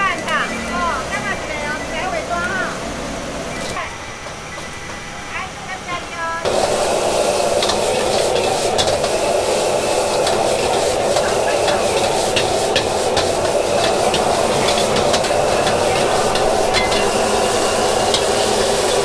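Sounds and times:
burner and frying hiss: 4.2s - 19.0s
metal ladle scraping a wok: 11.6s - 18.9s.

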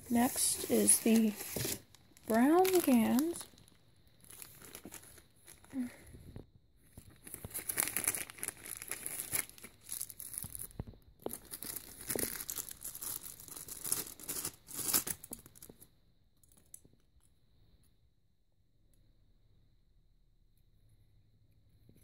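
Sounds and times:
plastic bag crinkling: 0.1s - 5.9s, 7.0s - 15.7s.

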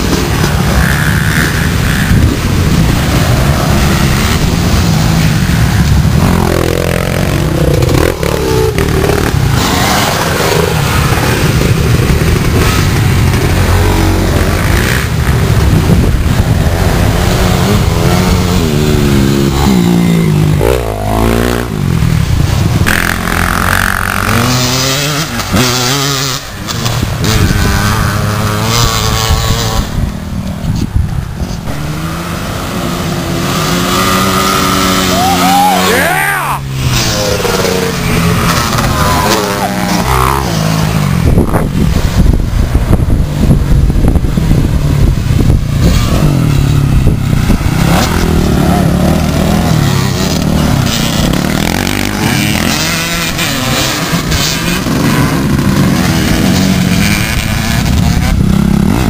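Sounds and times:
dirt bikes revving past: 0.0s - 59.0s.

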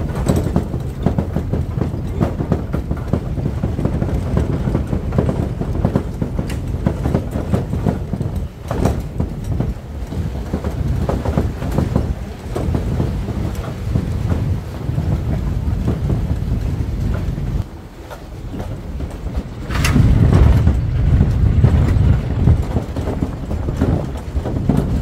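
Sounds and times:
clattering and knocks: 0.0s - 25.0s
wind buffeting microphone: 0.0s - 25.0s.

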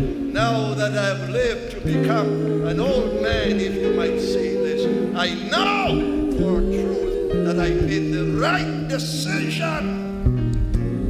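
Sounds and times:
person singing with vibrato: 0.0s - 10.1s
held instrumental notes: 0.0s - 11.0s.

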